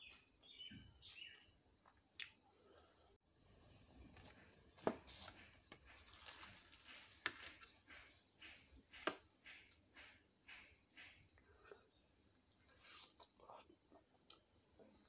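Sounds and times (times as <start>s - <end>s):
fried bread crackling: 3.4s - 13.6s.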